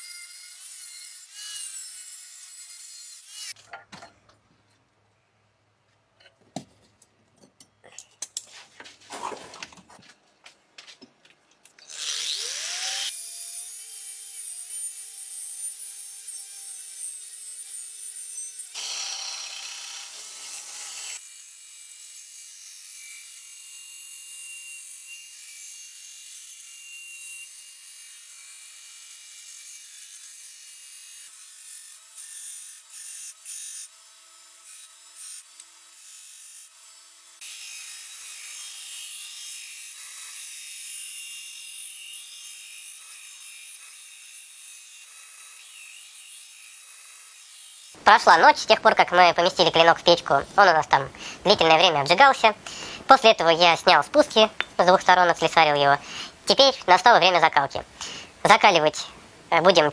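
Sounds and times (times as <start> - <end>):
belt grinder grinding steel: 0.0 - 3.6, 11.8 - 56.0.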